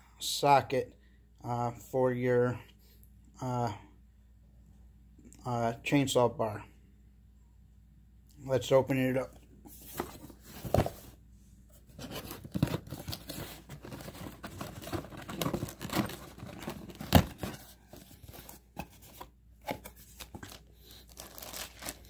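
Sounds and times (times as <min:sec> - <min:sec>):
cardboard scraping and rustling: 0:09.7 - 0:22.0.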